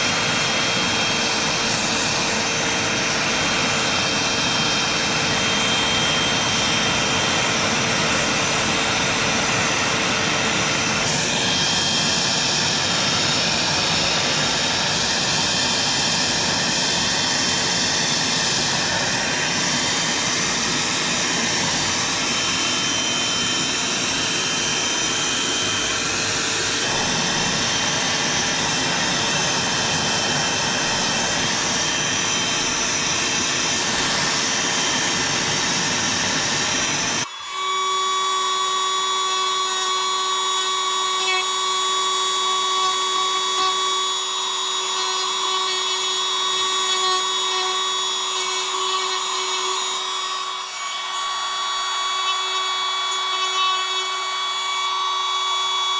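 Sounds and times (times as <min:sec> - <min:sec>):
small power tool running: 0:00.0 - 0:55.9.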